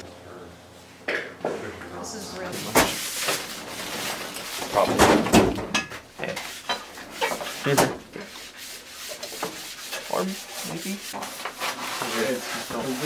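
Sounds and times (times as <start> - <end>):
rubbing and scraping metal parts: 6.4 - 13.0.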